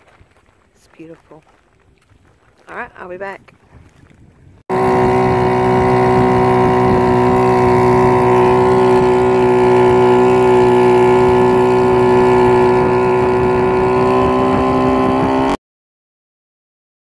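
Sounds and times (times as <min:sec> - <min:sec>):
outboard motor running: 0:04.7 - 0:15.6.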